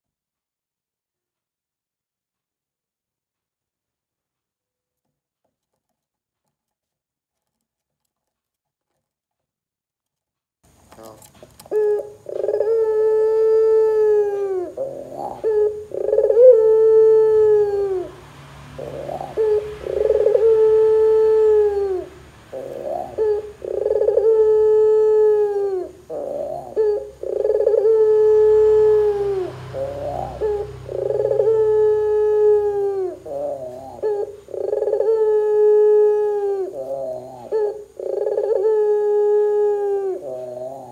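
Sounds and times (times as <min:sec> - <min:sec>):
dove cooing: 0:10.9 - 0:40.9.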